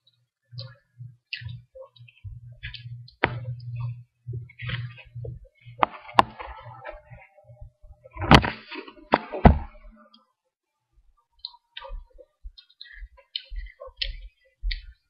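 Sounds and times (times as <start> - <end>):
microphone handling bumps and rustling: 1.1 - 10.0
sharp clicks or knocks: 2.6 - 4.0, 4.6 - 6.6, 8.2 - 9.8.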